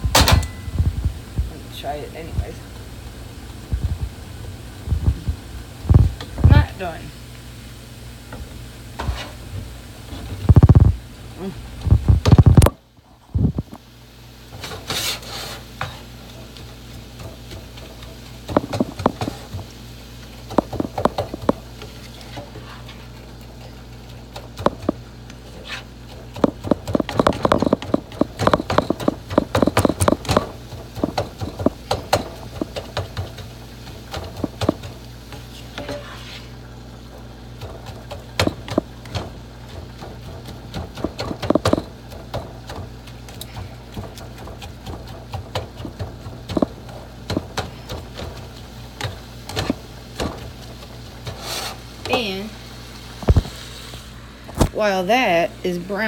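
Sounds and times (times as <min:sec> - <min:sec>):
steady low hum: 0:00.0 - 0:15.0, 0:15.6 - 0:56.0
spatula scraping frying pan: 0:09.0 - 0:09.5, 0:14.5 - 0:19.6, 0:20.4 - 0:34.8, 0:35.4 - 0:36.7, 0:37.8 - 0:52.0.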